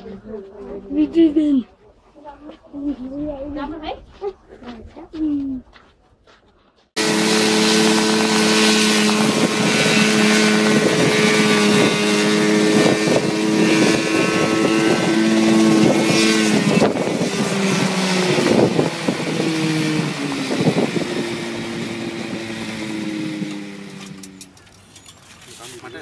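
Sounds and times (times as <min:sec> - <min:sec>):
wind noise on microphone: 0:07.0 - 0:24.0
helicopter piston engine running: 0:07.0 - 0:24.6.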